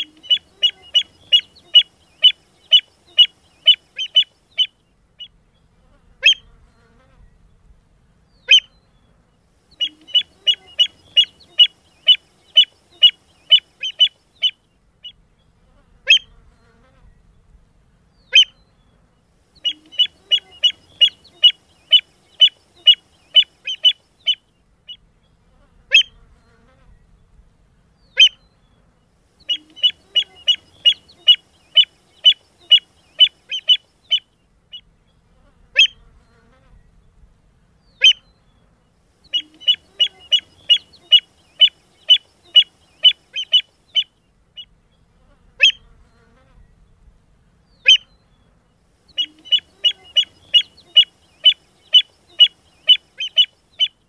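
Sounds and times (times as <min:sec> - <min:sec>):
sharp high bird calls: 0:00.0 - 0:05.4, 0:09.8 - 0:15.2, 0:19.6 - 0:25.0, 0:29.4 - 0:34.9, 0:39.3 - 0:44.7, 0:47.8 - 0:48.1, 0:49.1 - 0:54.0.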